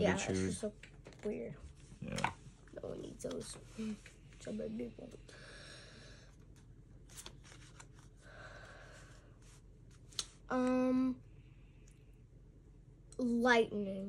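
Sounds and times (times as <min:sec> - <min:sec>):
trading cards rustling: 0:06.4 - 0:08.2.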